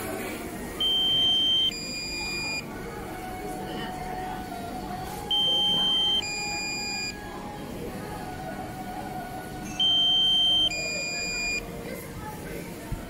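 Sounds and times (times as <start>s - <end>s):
two-tone warning beeps: 0.8s - 2.7s, 5.3s - 7.3s, 9.6s - 11.6s.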